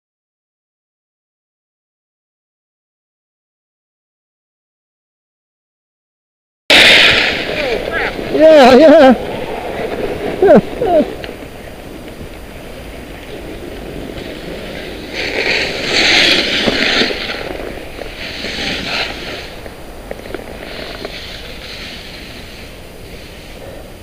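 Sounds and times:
skis scraping over snow: 0:06.7 - 0:24.0
wind rush on microphone: 0:07.0 - 0:24.0.

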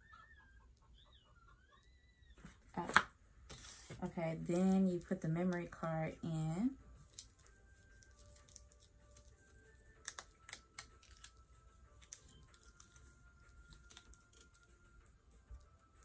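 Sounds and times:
fingernails clicking on plastic card: 0:10.0 - 0:11.4.

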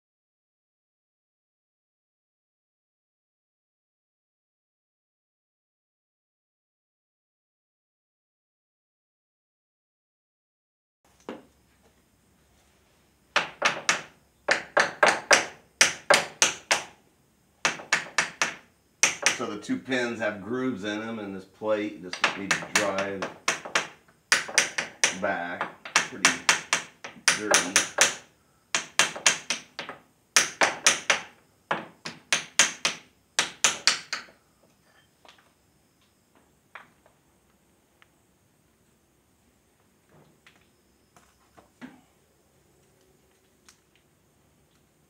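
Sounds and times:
hammer striking steel: 0:26.0 - 0:28.2.

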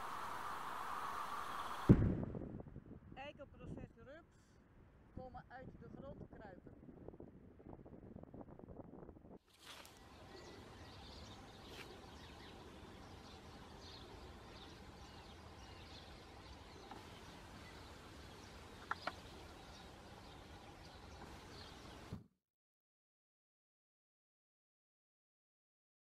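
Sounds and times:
bird chirps: 0:10.0 - 0:22.2.

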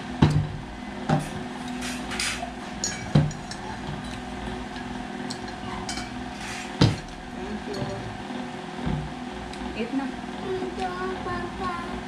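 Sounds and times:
steady low hum: 0:00.0 - 0:12.0
tableware knocking on table: 0:02.9 - 0:04.1, 0:06.8 - 0:07.1.

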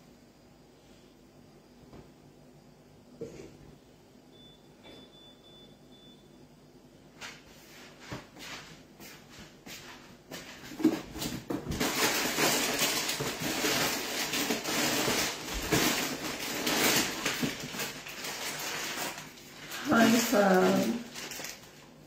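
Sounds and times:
rustling and crackling of handled things: 0:07.1 - 0:22.0.

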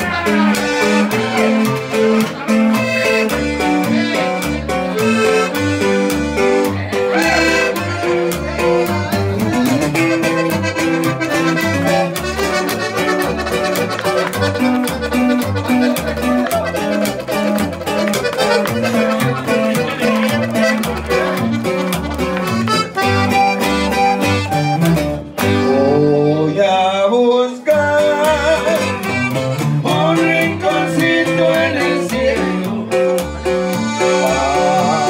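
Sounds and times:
button accordion melody: 0:00.0 - 0:35.0
steady bass line: 0:00.0 - 0:35.0
strummed bajo sexto: 0:00.0 - 0:35.0.

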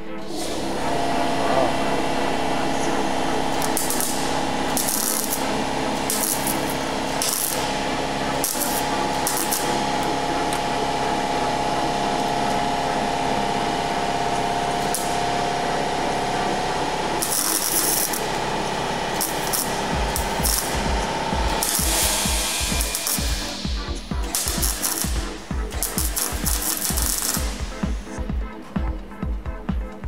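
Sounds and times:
steady hum: 0:00.0 - 0:30.0
crackling welding arc: 0:00.1 - 0:28.3.

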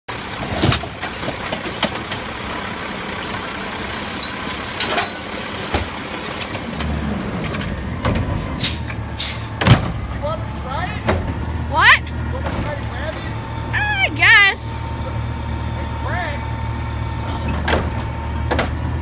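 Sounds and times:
garbage truck engine running: 0:00.1 - 0:19.0
metal clanks and knocks: 0:00.3 - 0:02.4, 0:04.0 - 0:08.4.

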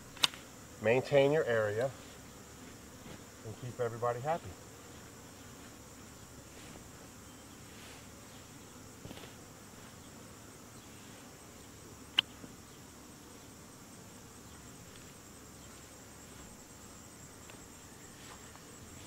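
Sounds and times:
snippers cutting grass: 0:00.0 - 0:00.5, 0:09.0 - 0:10.0
high insect trill: 0:00.0 - 0:19.0
honeybees humming: 0:00.0 - 0:19.0.

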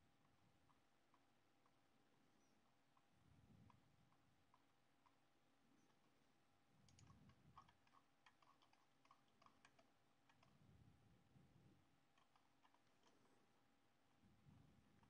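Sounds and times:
soft clicks: 0:06.8 - 0:10.6.

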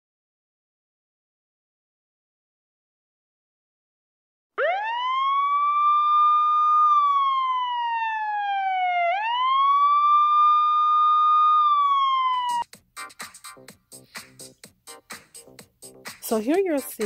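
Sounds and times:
wailing siren: 0:04.6 - 0:12.6.

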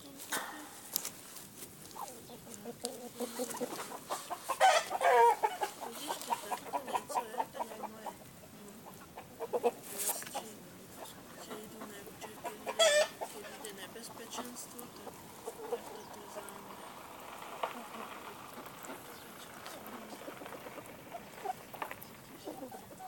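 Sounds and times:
chickens clucking: 0:00.0 - 0:23.0
chicken drawn-out call: 0:02.0 - 0:08.2, 0:11.0 - 0:13.7.

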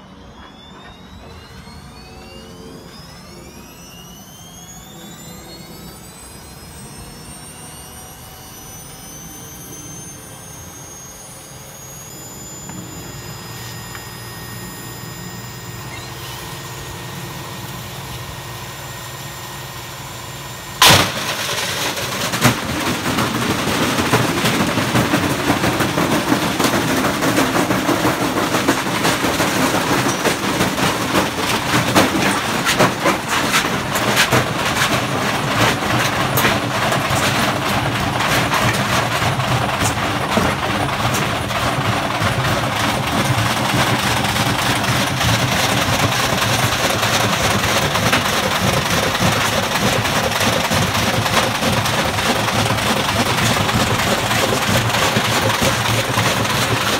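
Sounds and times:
bricks clattering in washing machines: 0:20.8 - 0:56.9.

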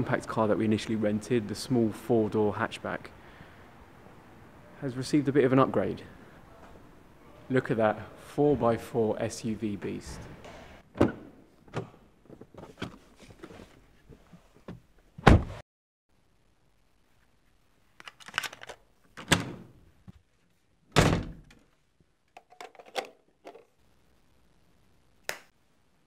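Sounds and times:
door thuds: 0:15.2 - 0:15.6, 0:21.0 - 0:21.4.

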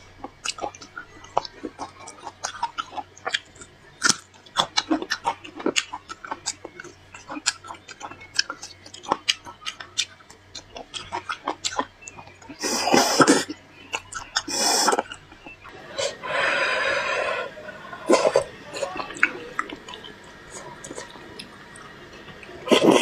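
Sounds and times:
wet chewing and lip smacks: 0:00.2 - 0:15.7, 0:18.1 - 0:22.5
loud slurp: 0:16.0 - 0:19.3.

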